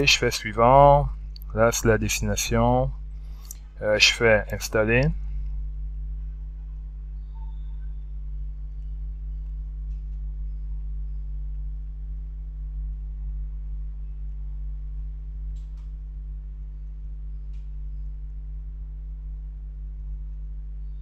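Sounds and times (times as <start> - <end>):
low electrical hum: 0.0 - 21.0
faint short clicks: 3.4 - 3.7.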